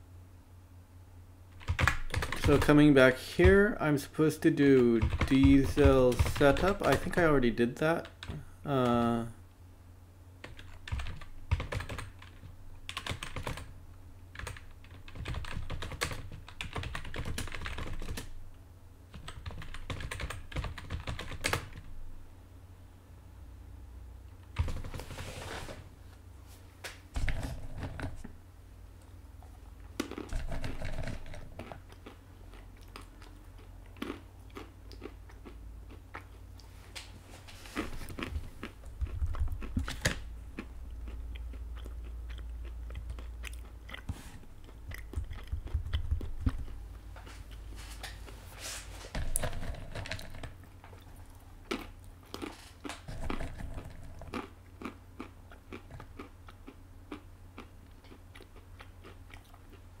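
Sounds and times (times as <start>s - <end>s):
low steady hum: 0.0s - 60.0s
person chewing: 29.0s - 60.0s.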